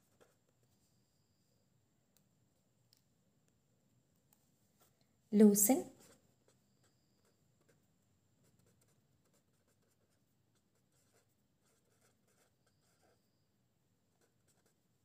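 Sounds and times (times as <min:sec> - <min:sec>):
pen scratching on paper: 0:00.0 - 0:00.9, 0:05.9 - 0:13.5, 0:14.1 - 0:15.0.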